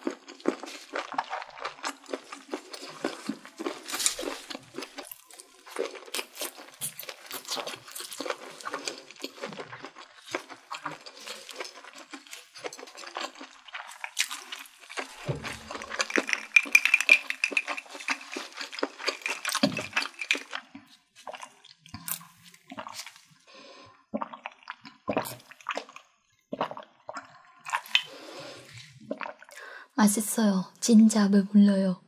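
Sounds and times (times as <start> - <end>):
slurping through a straw: 0.0 - 29.7
wet chewing: 0.0 - 29.7
swallowing: 13.8 - 25.9, 26.5 - 29.8.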